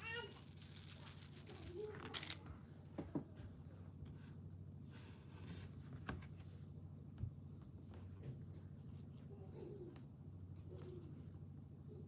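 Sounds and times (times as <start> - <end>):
faint scratchy rustle: 0.0 - 2.4.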